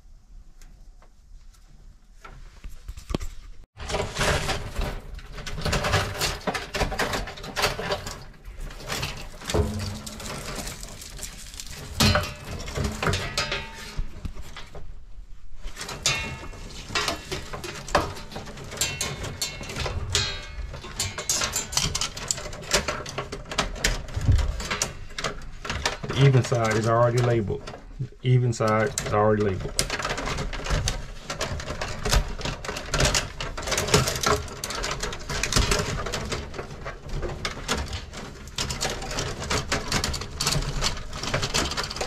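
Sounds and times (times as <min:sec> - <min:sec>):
wires rustling and scraping on metal: 0:00.0 - 0:42.0.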